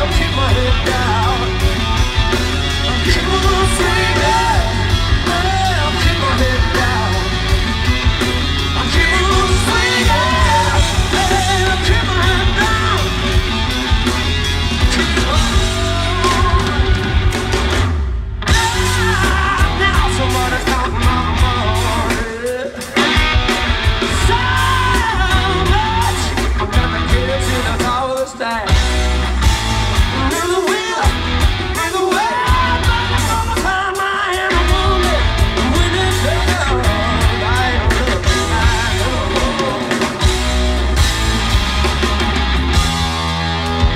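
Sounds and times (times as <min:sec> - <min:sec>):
man singing: 0:00.0 - 0:13.4, 0:14.8 - 0:17.3, 0:18.5 - 0:29.2, 0:30.0 - 0:40.5
bass guitar: 0:00.0 - 0:43.9
drum kit: 0:00.0 - 0:43.9
electric guitars: 0:00.0 - 0:43.9.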